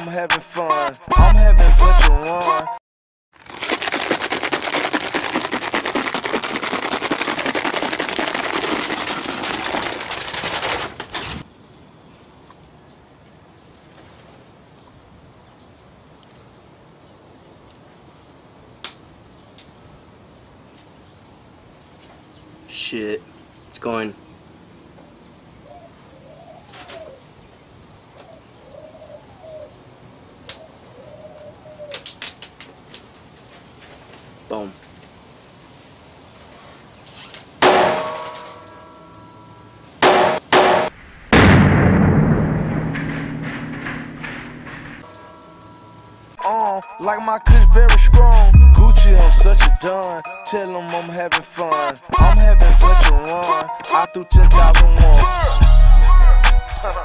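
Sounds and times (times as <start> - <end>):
plastic bottle rattling and crackling: 3.4 - 11.4
dove cooing: 25.6 - 27.3, 28.1 - 29.8, 30.6 - 32.1.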